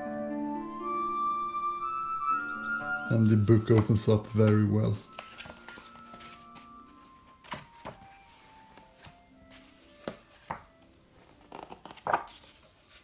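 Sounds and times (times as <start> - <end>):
soft background music: 0.0 - 13.0
book pages turning: 3.1 - 13.0.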